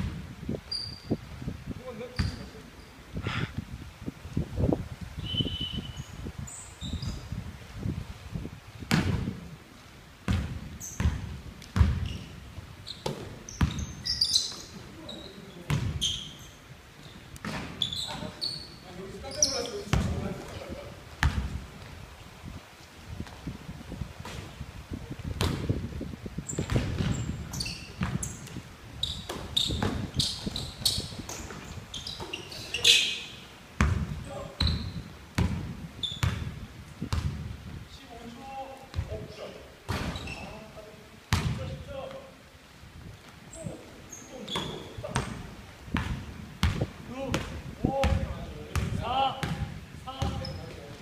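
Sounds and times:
high squeaks: 0.7 - 1.2, 12.0 - 15.4, 16.0 - 17.2, 17.8 - 19.8, 26.5 - 28.4, 29.0 - 33.4, 40.1 - 40.7
sneakers squeaking: 0.7 - 1.2, 2.0 - 3.0, 5.2 - 7.4, 10.3 - 21.9, 26.4 - 37.4, 38.4 - 41.7, 43.5 - 47.4, 48.0 - 50.9
basketball bouncing on wood floor: 10.3 - 12.2, 15.7 - 16.0, 21.2 - 21.5, 25.4 - 25.7, 26.5 - 28.6, 29.3 - 30.5, 33.8 - 34.8, 35.4 - 36.5, 37.1 - 37.4, 41.3 - 41.6, 46.0 - 50.6.

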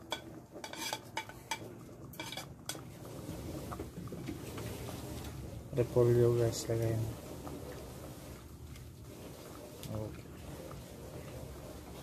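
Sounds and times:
metal utensil clinking against pot: 0.0 - 2.8.

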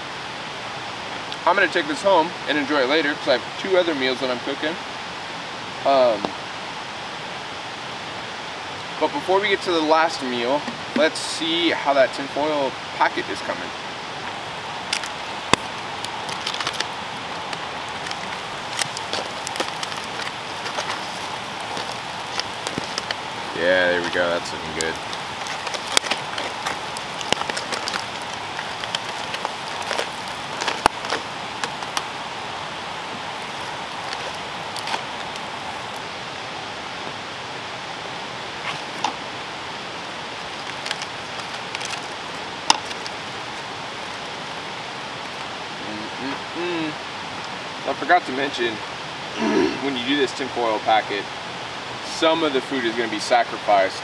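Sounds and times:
background hiss: 0.0 - 54.0
food sizzling: 8.9 - 51.2
crackles and pops: 12.2 - 36.2, 38.1 - 47.6
foil crinkling: 14.8 - 36.0, 40.3 - 44.4.

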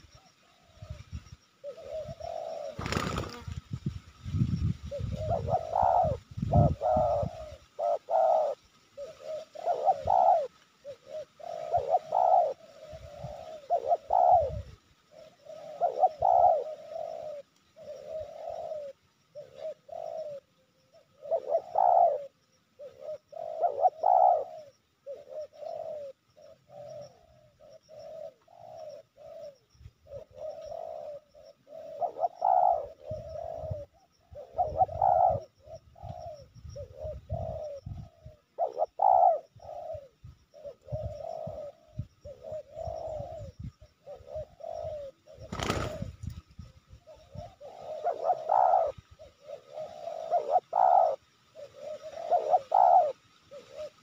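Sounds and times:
doves cooing: 0.0 - 3.6, 4.8 - 54.0
wingbeats flurry: 2.3 - 4.3, 45.3 - 46.6.

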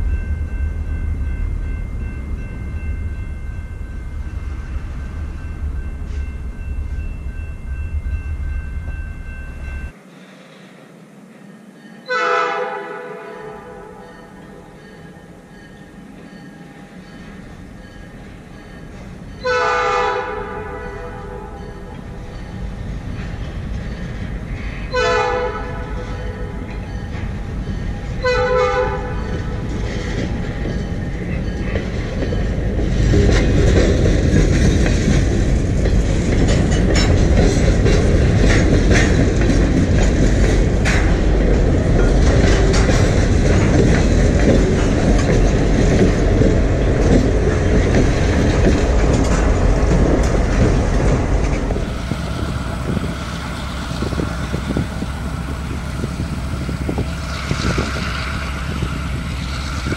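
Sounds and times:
diesel locomotive engine: 0.0 - 59.9
train wheels clacking over rail joints: 14.0 - 59.9.

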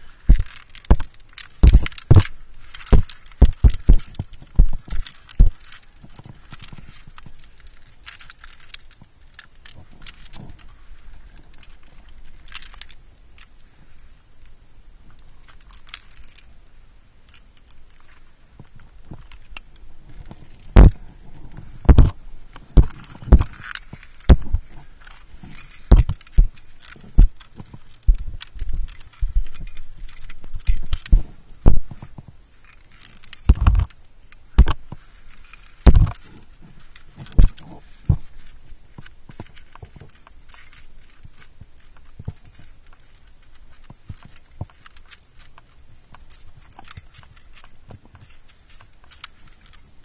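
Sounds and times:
climbing gear clinking and rustling: 0.0 - 50.0
loud knocks and scrapes on rock: 0.3 - 6.9, 20.2 - 29.4, 35.8 - 36.4.

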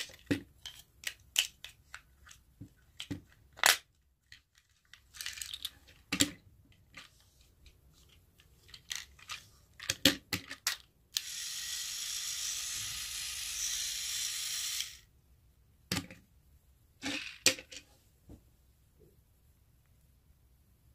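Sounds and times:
toy train motor and gears: 11.1 - 15.1.

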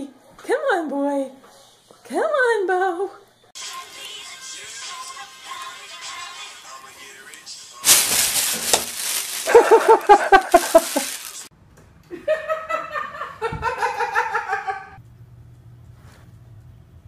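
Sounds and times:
plastic bag crackling: 7.8 - 11.5
people laughing: 9.5 - 11.2, 12.1 - 15.0.

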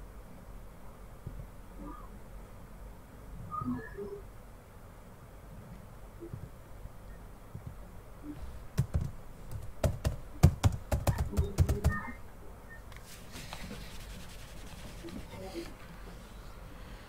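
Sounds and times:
typing on keyboard: 8.8 - 12.1.

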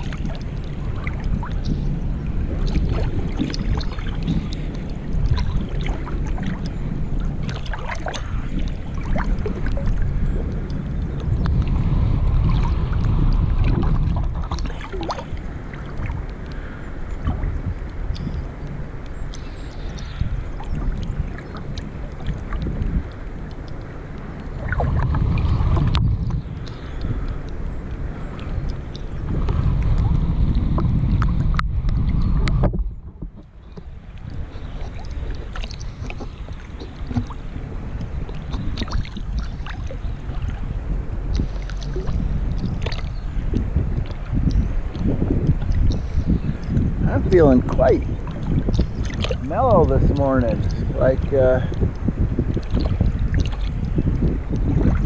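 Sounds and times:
water drips: 0.0 - 1.8, 12.4 - 29.2, 33.6 - 40.6, 41.3 - 55.0
lake water sloshing and splashing: 0.0 - 55.0
wind on microphone: 0.0 - 55.0.

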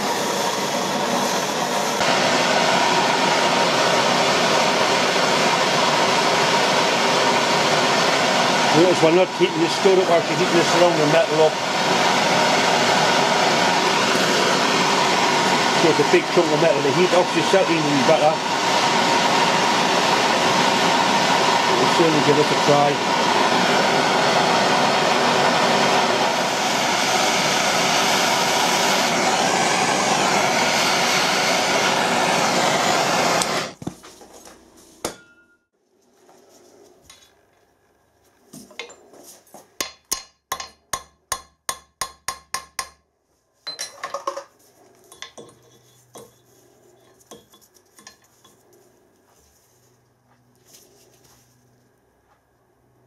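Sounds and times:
blowtorch hissing: 0.0 - 33.8.

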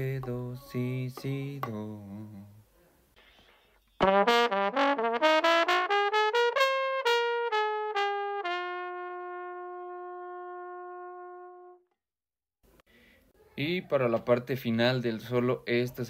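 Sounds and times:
valve trombone playing: 4.0 - 11.9.

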